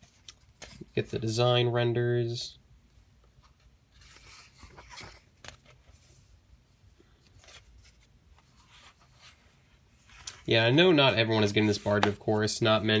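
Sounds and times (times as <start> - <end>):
book page turning: 3.4 - 6.3, 7.2 - 13.0.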